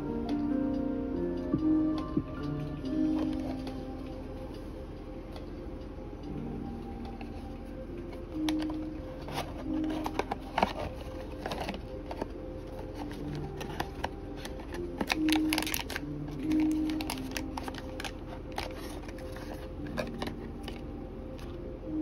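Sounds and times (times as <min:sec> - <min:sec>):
soft background music: 0:00.0 - 0:22.0
cardboard carton being opened: 0:08.6 - 0:16.0.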